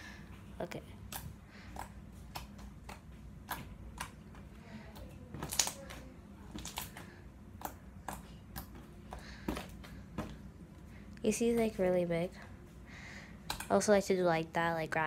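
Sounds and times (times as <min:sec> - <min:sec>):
slime squishing with clicks and pops: 0:01.0 - 0:08.8, 0:13.4 - 0:13.9.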